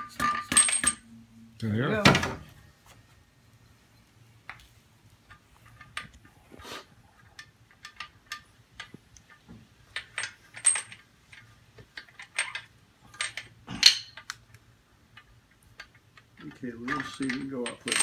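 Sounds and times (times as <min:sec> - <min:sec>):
metal engine parts clinking: 0:00.0 - 0:01.0, 0:07.3 - 0:14.4, 0:15.1 - 0:18.0.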